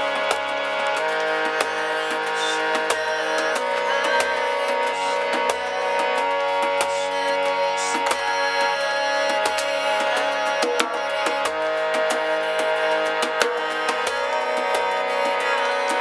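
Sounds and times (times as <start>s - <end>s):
light percussive clicks: 0.0s - 16.0s
sustained drone tones: 0.0s - 16.0s.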